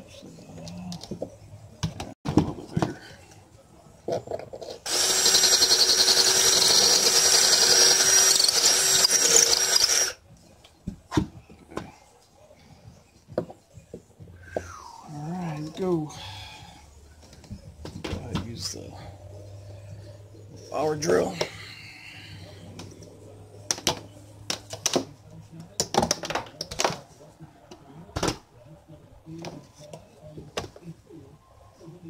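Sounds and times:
cordless drill boring: 4.9 - 10.2.

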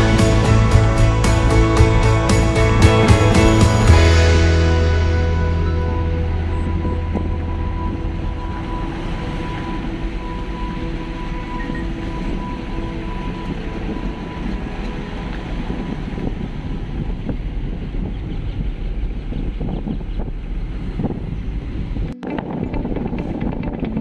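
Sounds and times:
steady tones: 0.0 - 19.2
car road and engine rumble: 0.0 - 24.0
wind noise on microphone: 0.0 - 24.0.

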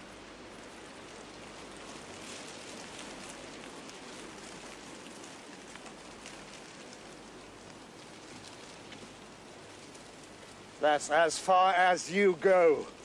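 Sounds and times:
faint crackles: 0.0 - 13.0
outdoor ambience hiss: 0.0 - 13.0.

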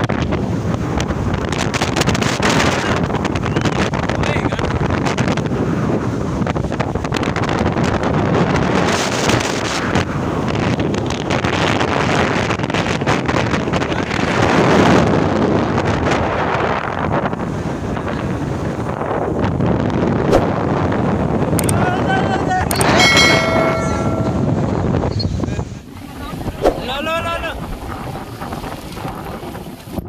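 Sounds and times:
surf breaking on beach: 0.0 - 30.0
wind buffeting microphone: 0.0 - 30.0.

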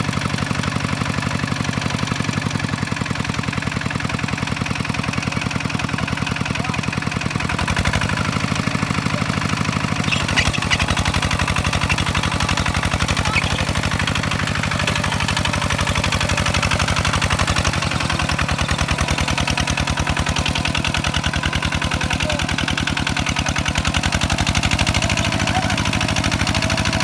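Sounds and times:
diesel tractor engine running: 0.0 - 27.0.

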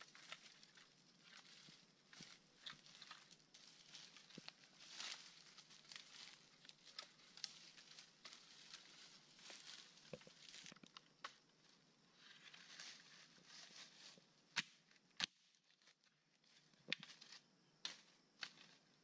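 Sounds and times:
leaf litter rustling and crackling: 0.0 - 10.9.

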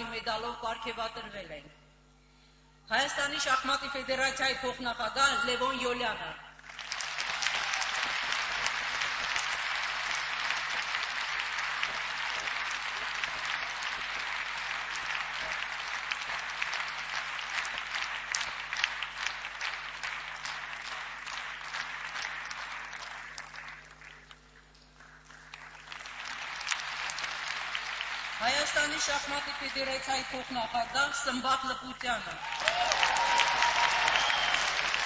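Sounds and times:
audience applauding: 6.6 - 30.9, 32.4 - 35.0.

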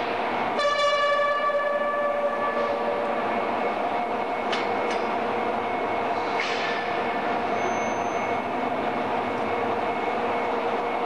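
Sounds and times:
steady din of railway shed: 0.0 - 11.0
horn sounding: 0.6 - 3.2.

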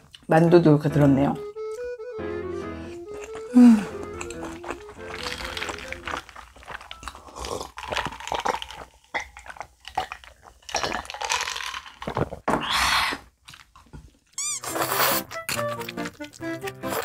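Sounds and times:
chewing and slurping: 2.7 - 17.0
drink swallowing: 3.1 - 13.2.

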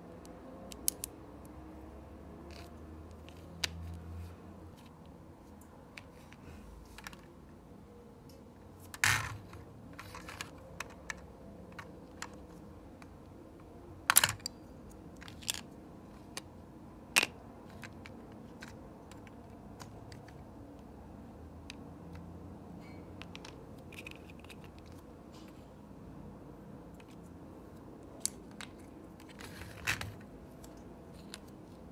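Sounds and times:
plastic bricks clicking: 0.7 - 1.1.

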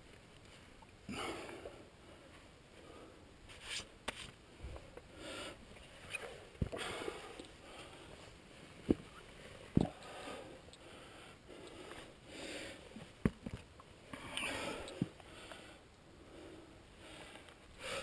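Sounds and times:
climber breathing hard: 4.6 - 8.4, 9.5 - 13.1, 14.1 - 18.0.

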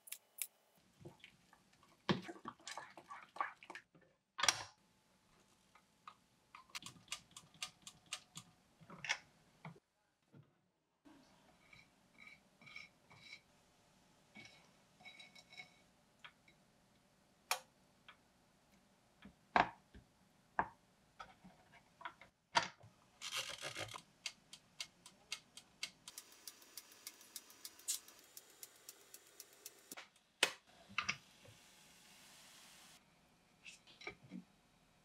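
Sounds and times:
faint steady hiss: 24.0 - 35.0
timer dial ticking clicks: 24.2 - 30.0.

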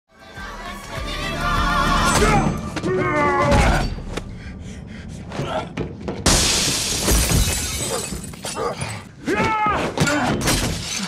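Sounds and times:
action film music: 0.3 - 6.2.

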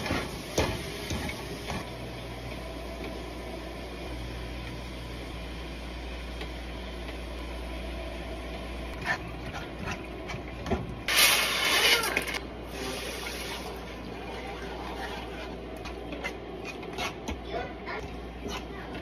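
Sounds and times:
spatula scraping a pan: 14.4 - 17.3.

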